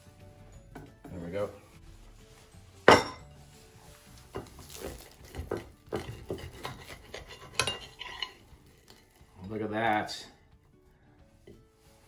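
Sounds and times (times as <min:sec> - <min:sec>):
plate knocking on wooden table: 0:02.9 - 0:03.2.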